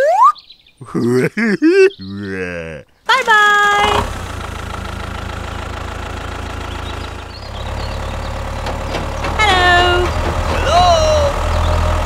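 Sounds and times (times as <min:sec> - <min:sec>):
tractor engine running: 0:03.0 - 0:12.0.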